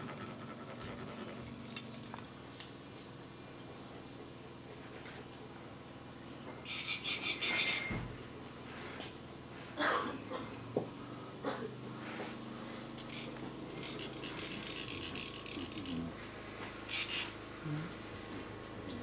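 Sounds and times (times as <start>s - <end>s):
metal rod rasping metal cone: 6.7s - 8.0s.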